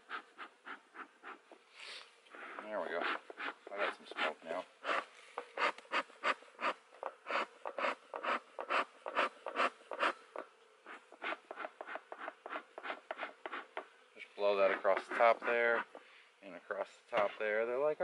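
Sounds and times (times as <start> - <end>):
bee smoker whooshing puffs: 0.0 - 13.8
honeybees humming: 0.0 - 18.0.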